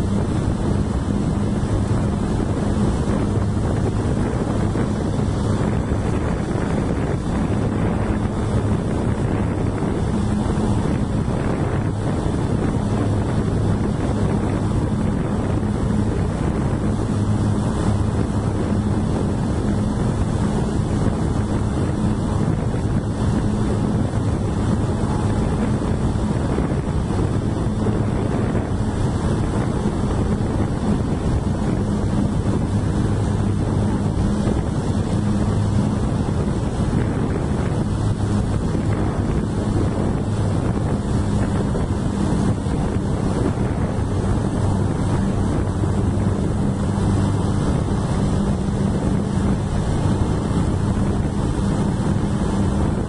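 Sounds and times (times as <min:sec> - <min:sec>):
road noise: 0:00.0 - 0:53.0
truck engine drone: 0:00.0 - 0:53.0
wind buffeting microphone: 0:00.0 - 0:53.0.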